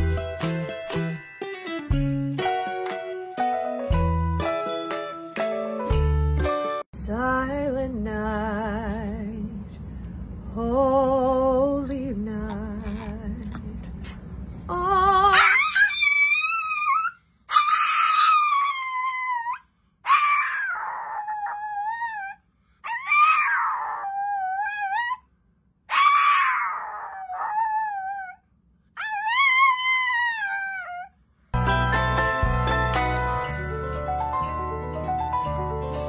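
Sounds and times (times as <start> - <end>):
music: 0.0 - 6.9, 31.6 - 36.0
small dog howling: 15.3 - 25.2, 25.9 - 28.4, 29.0 - 31.1.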